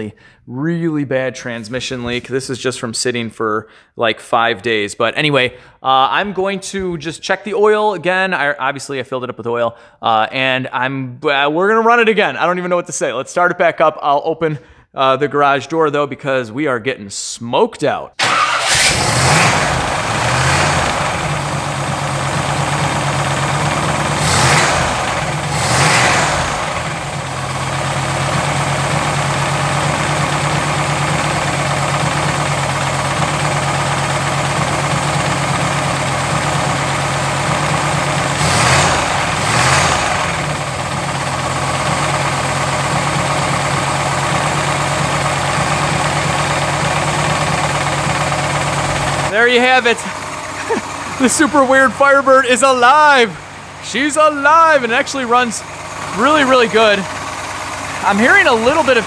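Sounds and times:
car engine revving at idle: 18.5 - 51.7, 55.6 - 59.0.

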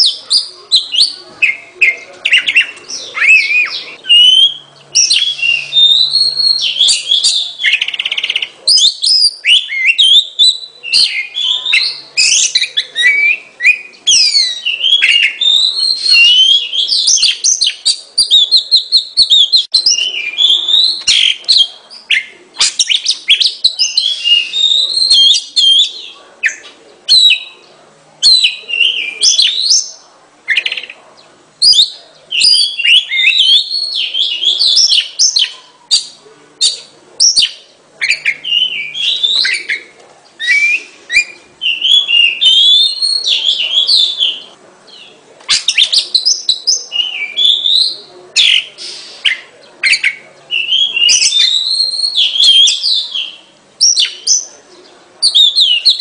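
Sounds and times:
bird singing whistled phrases: 0.0 - 27.6, 31.6 - 44.5, 45.5 - 54.5, 55.2 - 56.0.

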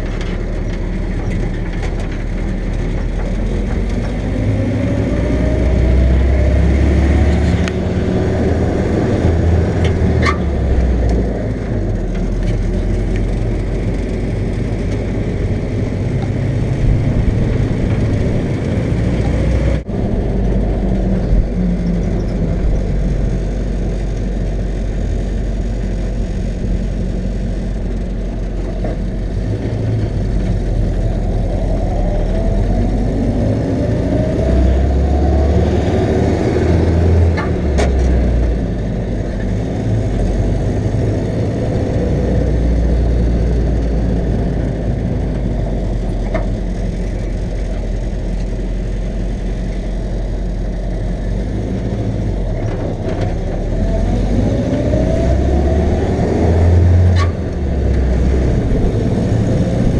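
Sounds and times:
jeep engine accelerating: 0.0 - 59.9.

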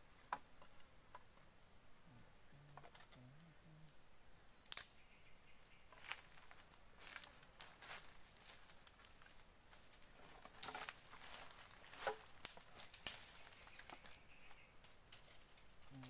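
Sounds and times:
faint high hum: 1.6 - 5.9
twigs snapping and rustling: 4.7 - 5.0, 5.9 - 16.0.

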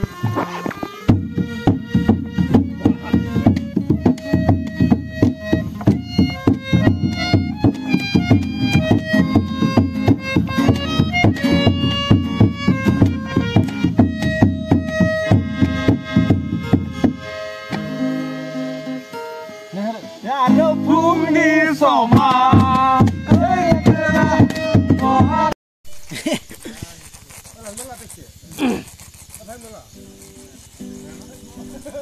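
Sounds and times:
hand drum beating: 0.0 - 18.2, 20.5 - 25.6
acoustic guitar: 0.0 - 25.6, 29.9 - 32.0
harmonium playing: 0.0 - 25.6.

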